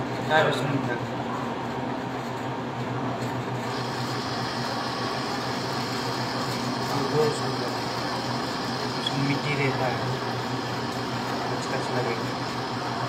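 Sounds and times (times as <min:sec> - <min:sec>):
mechanical hum: 0:00.0 - 0:13.0
hiss: 0:03.7 - 0:13.0.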